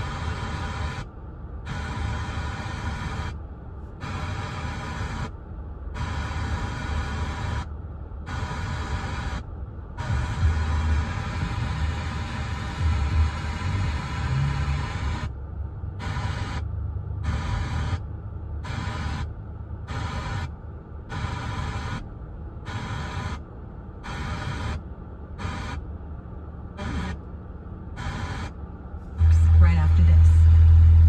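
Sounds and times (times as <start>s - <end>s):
radio static hiss: 0.0s - 1.1s, 1.7s - 3.4s, 4.0s - 5.3s, 6.0s - 7.7s, 8.3s - 15.4s, 16.0s - 18.0s, 18.6s - 19.3s, 19.9s - 22.1s, 22.7s - 23.4s, 24.0s - 24.8s, 25.4s - 25.8s, 26.8s - 27.3s, 27.9s - 31.0s
low rumble: 24.8s - 31.0s.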